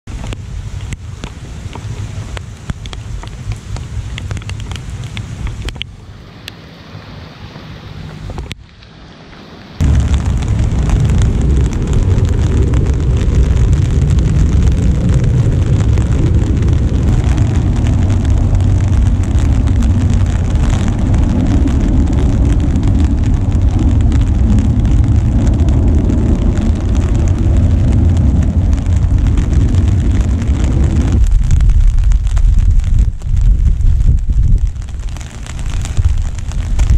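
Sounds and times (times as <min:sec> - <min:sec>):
steady rain falling: 0:00.0 - 0:36.9
wind buffeting microphone: 0:09.8 - 0:36.9.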